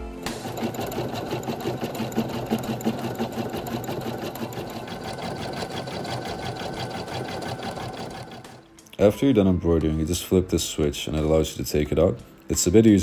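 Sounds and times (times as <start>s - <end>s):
embroidery machine stitching: 0.2s - 8.6s.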